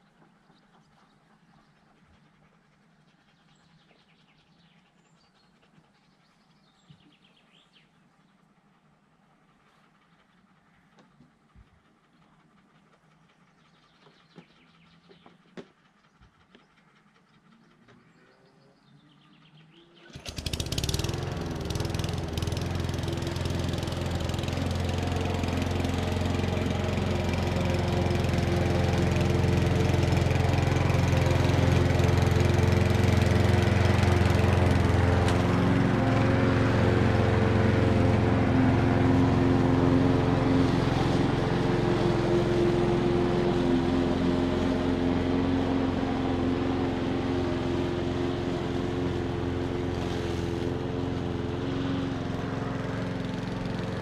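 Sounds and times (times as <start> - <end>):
lawn mower engine running: 20.0 - 54.0.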